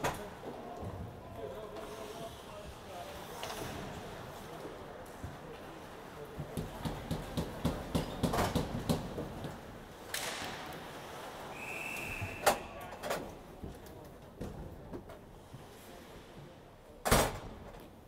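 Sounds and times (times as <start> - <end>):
hockey sticks clacking on puck: 6.4 - 10.6.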